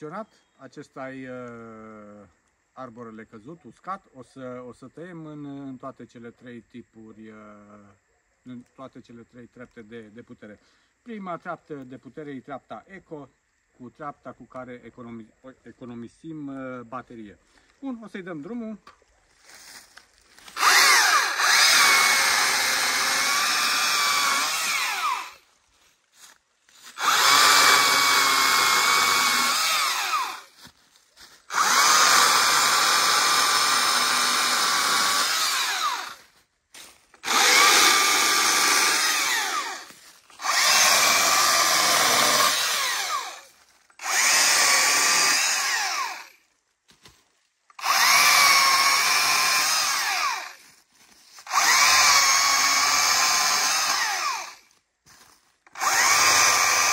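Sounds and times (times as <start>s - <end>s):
chainsaw winding down: 20.4s - 25.4s, 26.8s - 30.6s, 31.5s - 36.3s, 37.2s - 46.4s, 47.7s - 50.6s, 51.4s - 54.7s, 55.6s - 56.9s
electric chainsaw whining: 20.4s - 25.4s, 26.8s - 30.6s, 31.5s - 36.3s, 37.1s - 46.4s, 47.7s - 50.6s, 51.4s - 54.7s, 55.6s - 56.9s.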